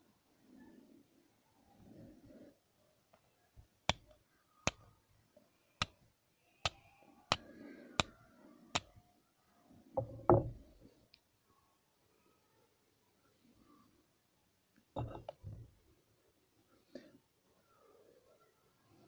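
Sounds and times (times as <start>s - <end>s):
flint and steel clicks: 3.9s - 4.9s.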